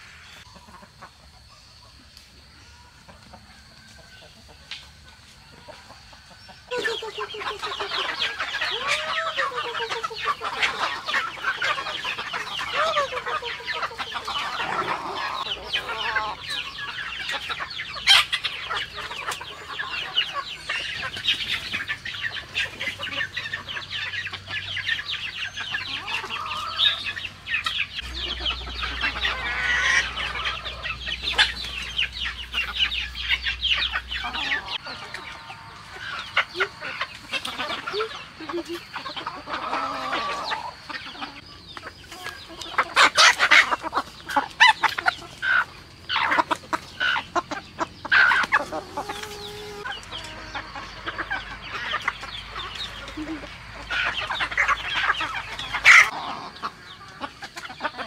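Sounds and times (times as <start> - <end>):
chickens clucking: 0.0 - 58.0.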